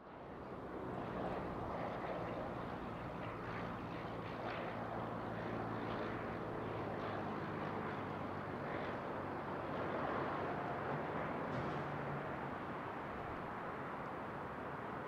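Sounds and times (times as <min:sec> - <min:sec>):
aircraft engine droning: 0:00.1 - 0:15.0.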